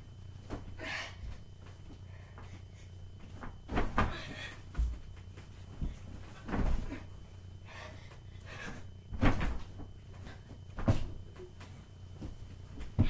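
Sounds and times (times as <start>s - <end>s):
body thudding on mattress: 3.2s - 7.4s, 8.6s - 13.0s.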